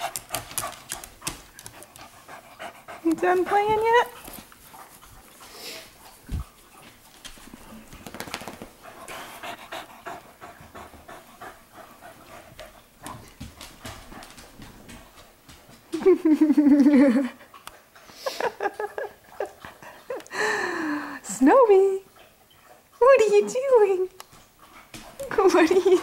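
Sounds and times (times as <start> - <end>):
dogs scuffling: 0.0 - 2.4, 3.0 - 9.4, 12.0 - 16.2
dogs panting: 0.0 - 26.0.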